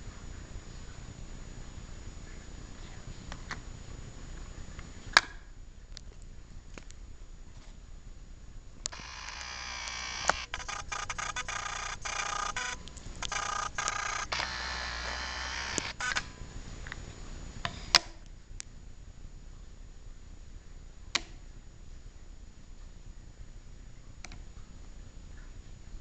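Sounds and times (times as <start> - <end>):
sharp clicks: 8.8 - 16.3
camera lens motor whirring: 8.9 - 16.3.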